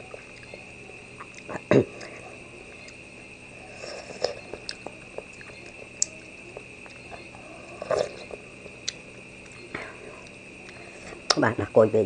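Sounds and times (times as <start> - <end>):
steady high whine: 0.0 - 12.0
person chewing: 3.7 - 11.4.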